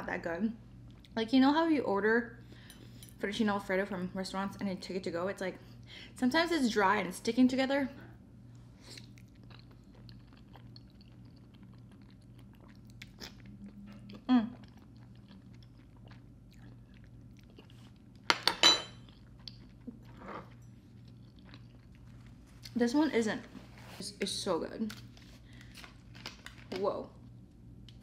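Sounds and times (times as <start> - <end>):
quiet chewing: 8.5 - 18.3, 19.0 - 22.8.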